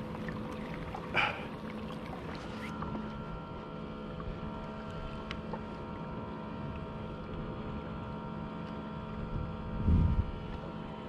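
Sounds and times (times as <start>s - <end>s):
faint constant hum: 0.0s - 11.0s
sea noise: 0.0s - 11.0s
wind: 0.0s - 11.0s.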